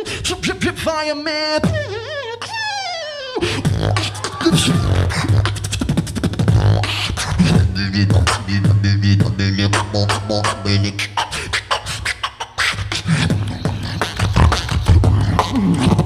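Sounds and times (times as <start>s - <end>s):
wobbling gliding vocal tone: 3.4s - 5.8s, 8.8s - 11.8s
beatboxing bass and clicks: 3.4s - 16.0s.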